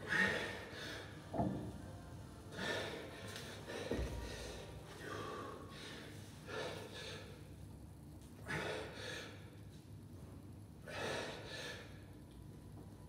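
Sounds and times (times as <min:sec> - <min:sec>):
man breathing hard: 0:00.0 - 0:01.3, 0:02.5 - 0:07.5, 0:08.4 - 0:09.6, 0:10.8 - 0:12.0.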